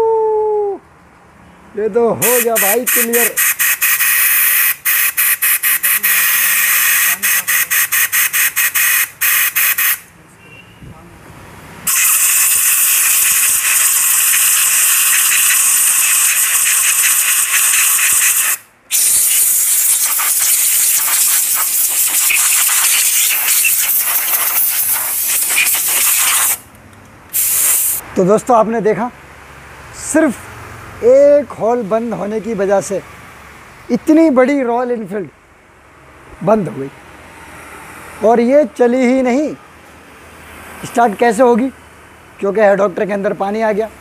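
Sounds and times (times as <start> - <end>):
compressed air hissing: 2.2 - 10.0, 11.9 - 26.7, 27.3 - 28.0.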